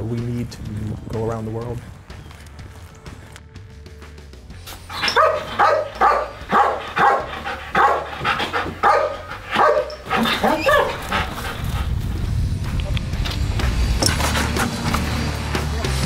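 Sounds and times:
dog barking loudly: 4.8s - 11.7s.

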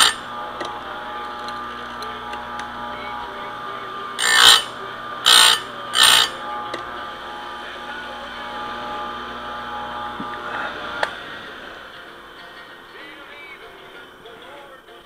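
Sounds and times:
grinding wheel grinding chain: 0.0s - 7.6s
grinder motor humming: 0.0s - 14.7s.

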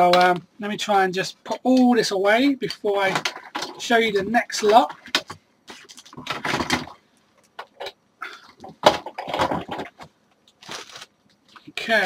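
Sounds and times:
plastic toys rustling and clattering: 2.7s - 11.7s.

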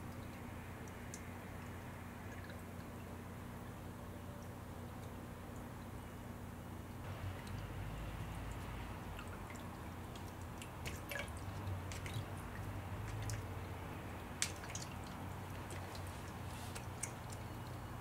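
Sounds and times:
water dripping and splashing: 0.0s - 3.3s, 7.0s - 18.0s
low steady hum: 0.0s - 18.0s.

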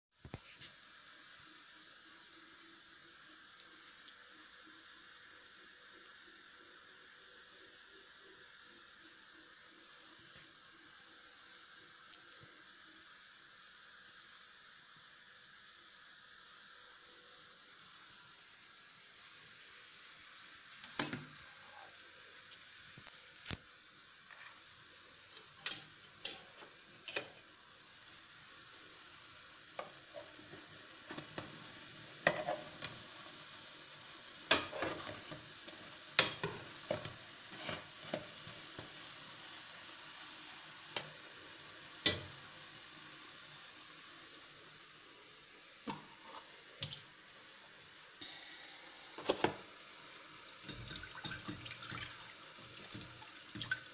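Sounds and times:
pancakes sizzling in oil: 0.1s - 53.9s.

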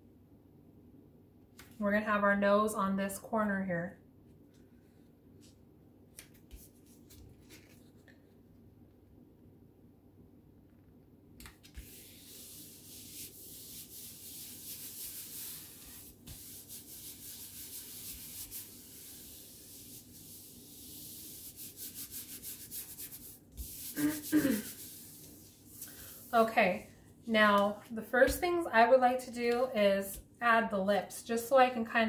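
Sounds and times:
palms rubbing paper: 6.2s - 8.3s, 11.4s - 26.9s.

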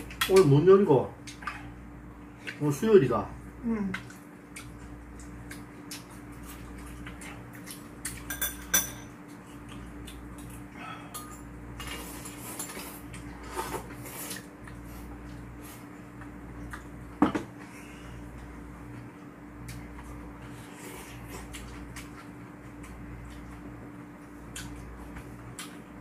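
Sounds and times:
utensils clinking against bowls: 8.1s - 9.2s.

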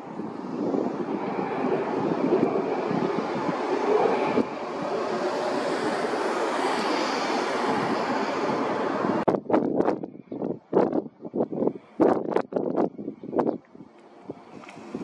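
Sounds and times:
jet engine rushing noise: 0.0s - 9.4s
wind on microphone: 0.0s - 15.0s.

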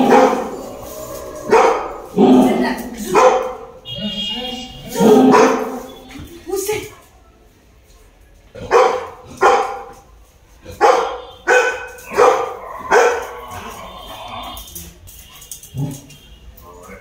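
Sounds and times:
dog barking: 0.0s - 0.6s, 1.4s - 3.8s, 5.0s - 6.0s, 8.6s - 10.0s, 10.7s - 13.6s.

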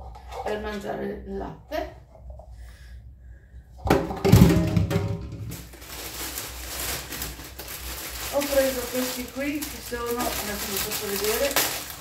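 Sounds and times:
plastic bag rustling: 5.3s - 12.0s.

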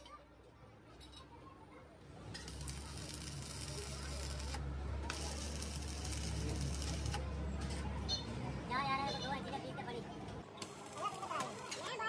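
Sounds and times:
welding arc crackling: 2.2s - 7.4s, 10.6s - 12.0s.

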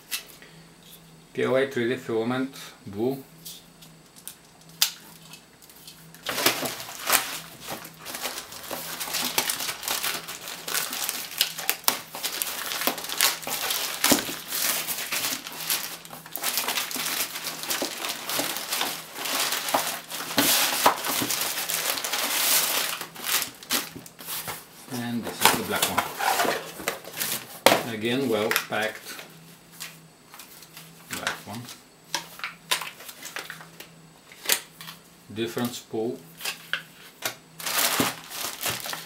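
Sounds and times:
plastic bag crinkling and tearing: 6.0s - 24.5s, 37.6s - 39.0s.

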